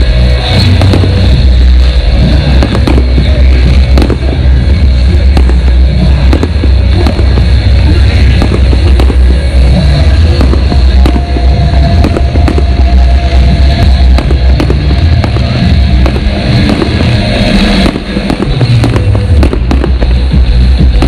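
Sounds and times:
fireworks cracks and bangs: 0.0s - 21.0s
heavy low rumble: 0.0s - 21.0s.

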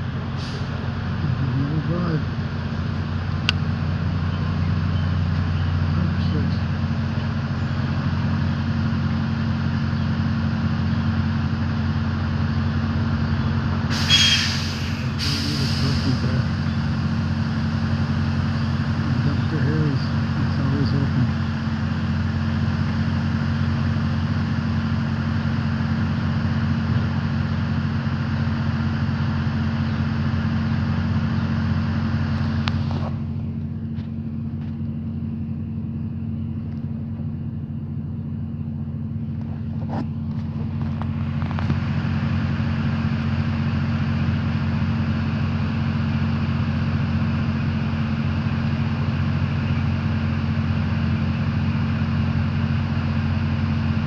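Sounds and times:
truck engine idling: 0.0s - 54.0s
hiss: 13.9s - 16.2s.

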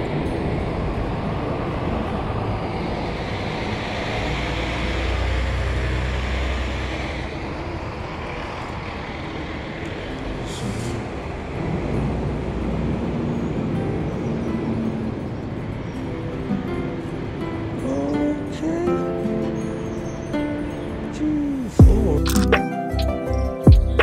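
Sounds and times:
vehicle passing with low rumble: 0.0s - 15.8s.

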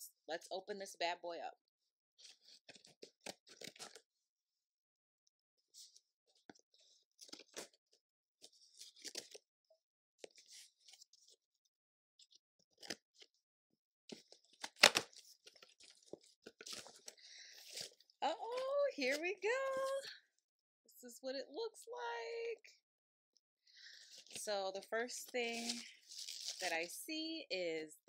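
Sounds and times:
loud cardboard crack: 14.6s - 15.2s.

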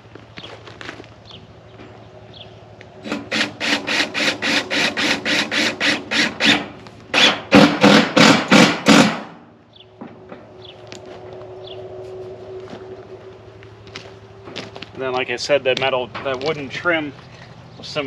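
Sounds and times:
fastener driven through steel siding: 3.0s - 9.4s.

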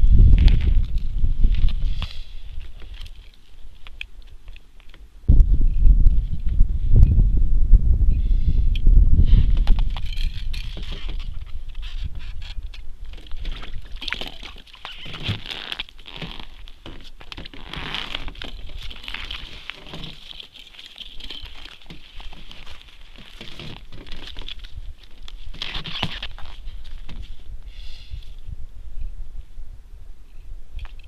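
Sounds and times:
steady low rumble: 0.0s - 2.9s, 5.0s - 11.8s
crunching on packed snow and ice: 0.0s - 4.7s, 9.4s - 27.5s.

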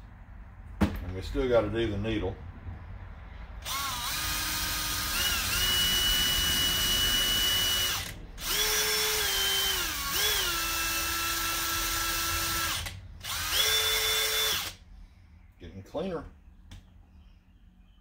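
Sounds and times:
cordless drill motor whine: 3.6s - 14.8s.

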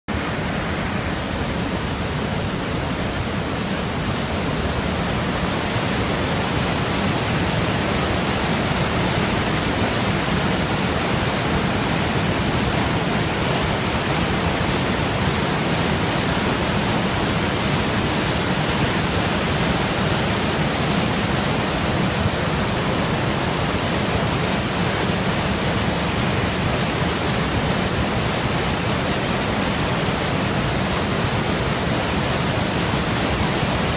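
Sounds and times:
waterfall rushing: 0.1s - 33.9s.

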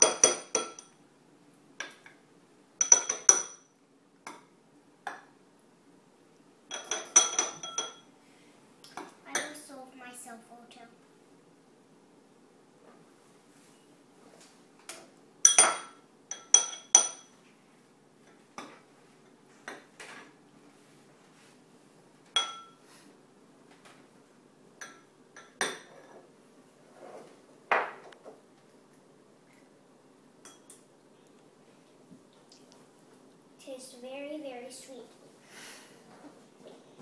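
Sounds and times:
spoons clinking against dishes: 0.0s - 1.0s, 2.8s - 4.4s, 6.7s - 8.1s, 15.4s - 17.4s, 22.4s - 22.8s, 30.4s - 30.8s.

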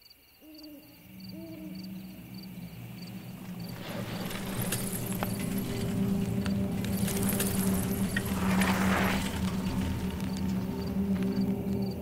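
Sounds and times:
crickets chirping: 0.0s - 12.0s
owl hooting: 0.4s - 4.8s.

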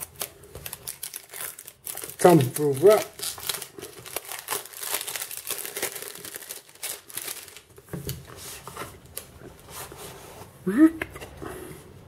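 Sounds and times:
plastic shrink-wrap crinkling: 0.0s - 8.2s.

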